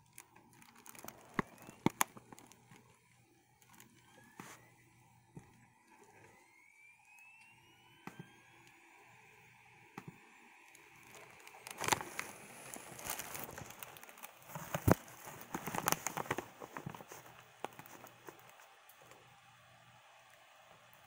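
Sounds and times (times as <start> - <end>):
faint rising whine: 0.0 - 21.0
camera handling rustling and clicking: 11.6 - 18.6.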